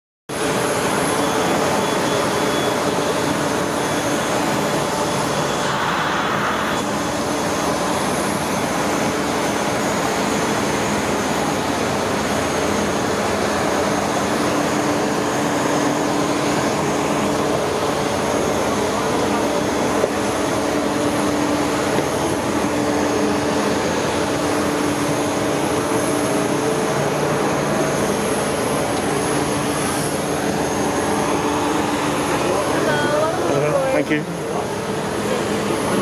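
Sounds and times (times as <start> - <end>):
jet aircraft rush and whine: 0.3 - 36.0.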